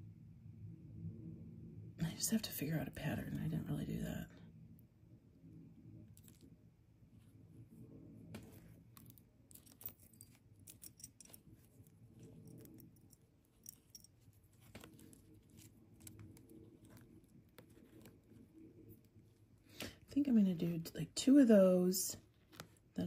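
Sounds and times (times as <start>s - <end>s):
beads clicking: 8.9s - 19.1s.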